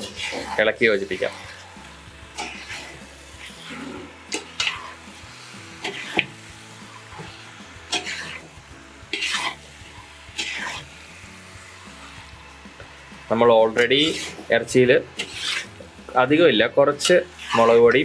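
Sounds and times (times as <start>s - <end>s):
spoon scraping a metal pot: 0.0s - 1.6s, 2.4s - 5.0s, 7.9s - 8.5s, 9.1s - 9.6s, 10.4s - 10.8s, 13.8s - 14.4s, 15.2s - 15.8s
faint sizzle: 0.0s - 18.0s.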